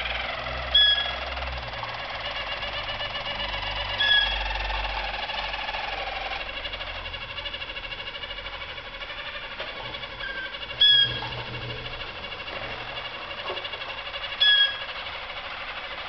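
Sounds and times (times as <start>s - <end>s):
canaries trilling: 0.0s - 1.6s, 2.2s - 4.9s, 6.4s - 15.0s
whistled bird note: 10.2s - 11.2s, 14.4s - 14.8s.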